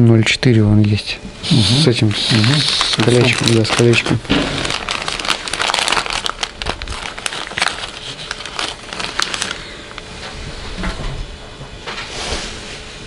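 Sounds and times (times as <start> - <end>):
plastic packets crinkling: 2.2 - 10.1.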